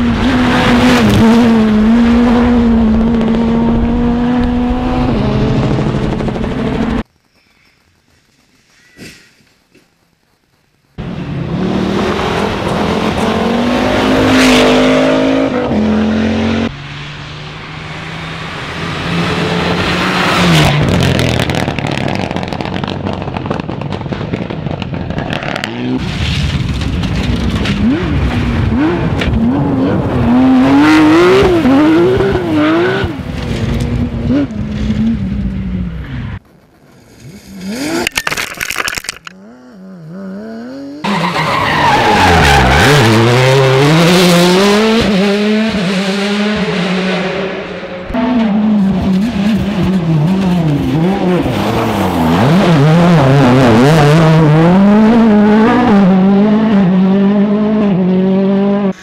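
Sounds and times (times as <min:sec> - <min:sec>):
rally car engines revving: 0:00.0 - 0:07.0, 0:11.0 - 0:36.4, 0:39.4 - 0:59.0
tyres hissing on gravel: 0:07.3 - 0:10.0.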